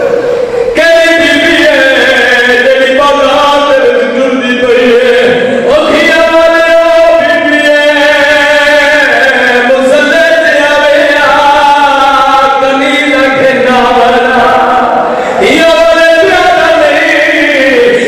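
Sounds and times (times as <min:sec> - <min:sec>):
man chanting melodic recitation: 0:00.0 - 0:18.0.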